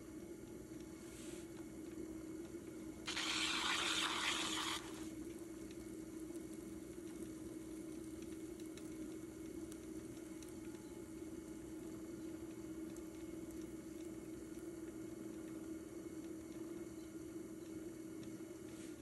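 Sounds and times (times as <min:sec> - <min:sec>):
pottery wheel humming: 0:00.0 - 0:19.0.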